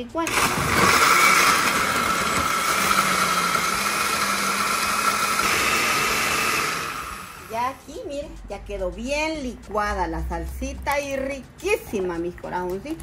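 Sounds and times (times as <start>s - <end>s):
blender whirring: 0.2s - 7.7s.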